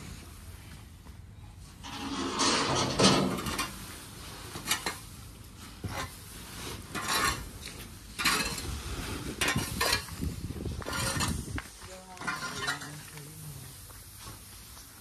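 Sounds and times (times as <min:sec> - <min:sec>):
dry straw rustling: 0:01.6 - 0:15.0
pitchfork tines scraping straw: 0:05.9 - 0:10.2.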